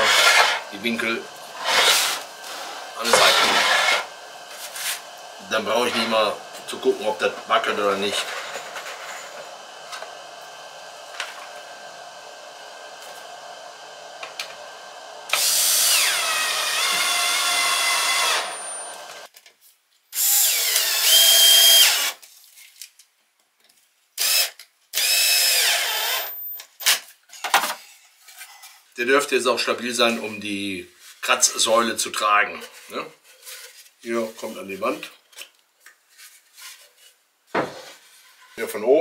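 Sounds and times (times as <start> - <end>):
electric drill driving into wood: 0.0 - 0.6, 1.6 - 5.1, 14.2 - 19.3, 20.2 - 22.2, 24.2 - 27.0.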